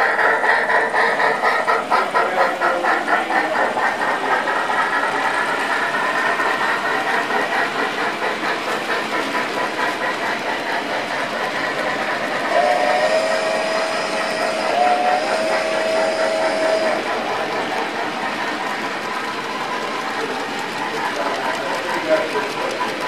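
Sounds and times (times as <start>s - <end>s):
model train cars clattering: 0.0s - 23.0s
steam whistle through small speaker: 12.5s - 16.9s.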